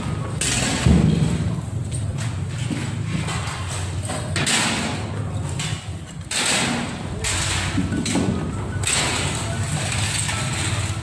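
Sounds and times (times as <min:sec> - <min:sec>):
debris rustling and scraping: 0:00.0 - 0:11.0.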